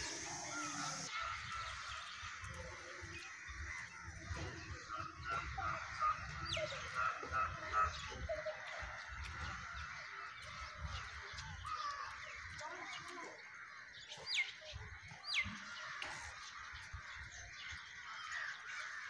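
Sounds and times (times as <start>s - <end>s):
crows cawing: 8.9s - 14.1s.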